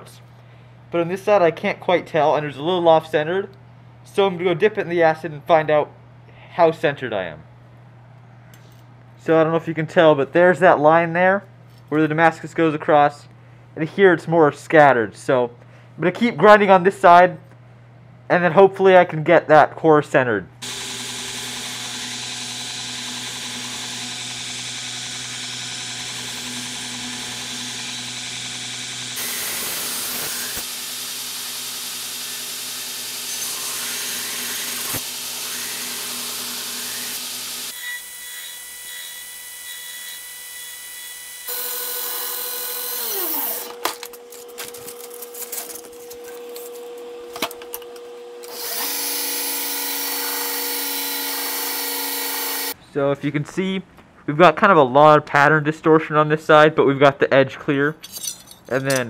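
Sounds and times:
belt grinder motor hum: 0:20.6 - 0:52.8.

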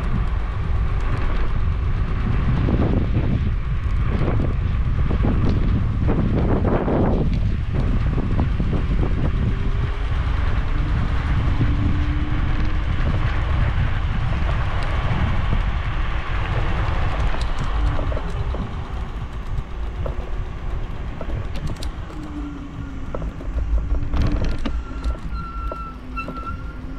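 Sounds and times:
vehicle rumble: 0:00.0 - 0:26.9
wind on microphone: 0:00.0 - 0:26.9
small ticks: 0:16.4 - 0:26.9.

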